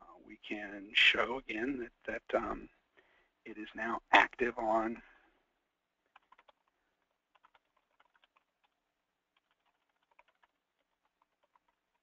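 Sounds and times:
faint keyboard typing: 6.0 - 12.0.

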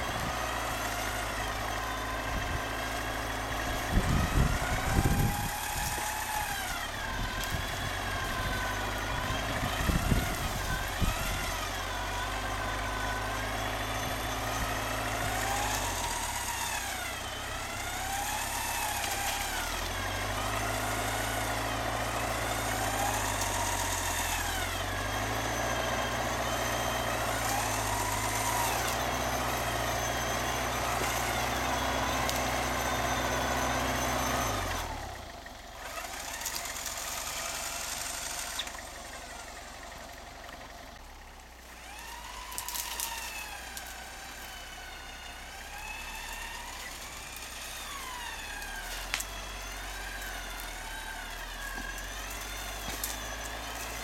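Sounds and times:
engine running at low revs: 0.0 - 54.0
sharp knocks and crunches: 51.4 - 54.0.

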